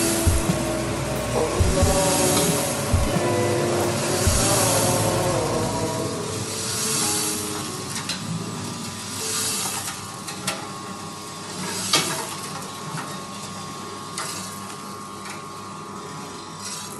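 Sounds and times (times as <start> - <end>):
steady machine hum: 0.0 - 9.3.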